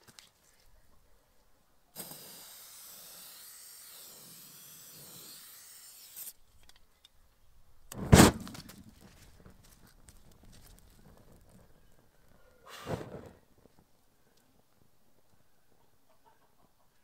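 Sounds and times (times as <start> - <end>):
aerosol can spraying hiss: 2.0 - 3.3
short loud thump: 8.0 - 8.7.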